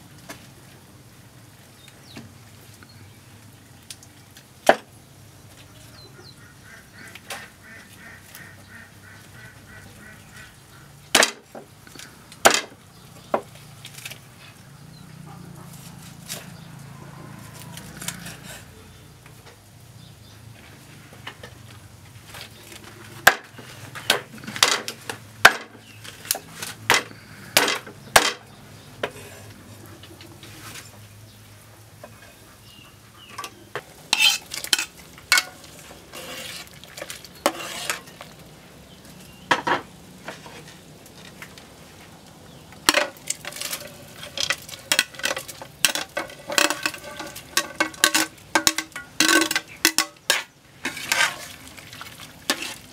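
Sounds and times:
metal spoon tapping and scraping: 34.1s - 35.7s.

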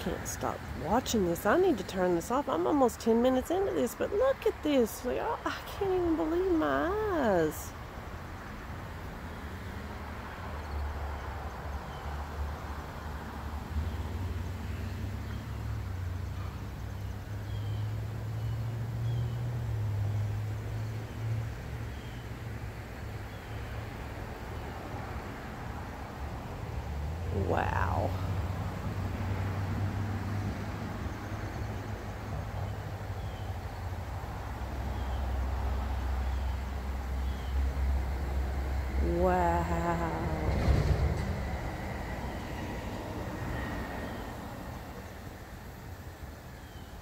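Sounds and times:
low outdoor rumble: 24.7s - 47.0s.

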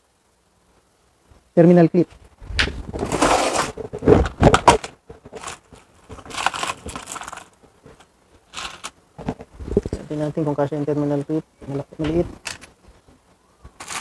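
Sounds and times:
rustling of small plastic bags: 2.2s - 10.7s, 13.7s - 14.0s.

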